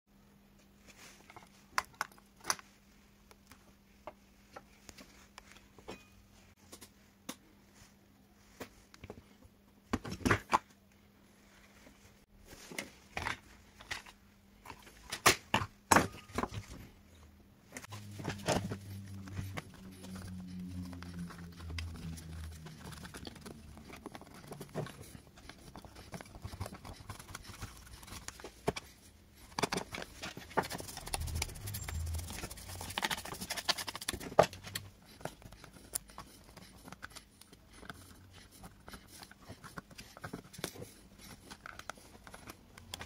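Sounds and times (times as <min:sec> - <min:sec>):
lower hum: 0:17.9 - 0:24.7.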